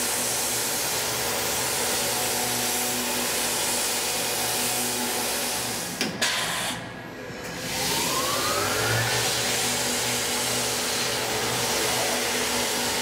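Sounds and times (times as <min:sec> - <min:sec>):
milling machine whine: 0:07.1 - 0:13.0.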